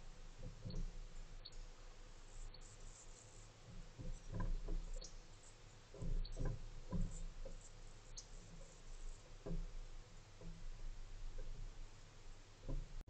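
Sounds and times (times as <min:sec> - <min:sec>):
steady low hum: 0:00.0 - 0:13.0
dull low knocks: 0:03.6 - 0:13.0.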